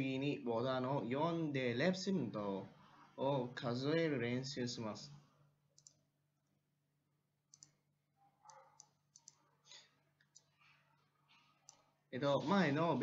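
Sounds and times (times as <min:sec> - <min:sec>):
computer mouse clicks: 0:05.8 - 0:06.0, 0:07.5 - 0:07.8, 0:08.4 - 0:09.5, 0:10.2 - 0:10.8, 0:11.6 - 0:11.9.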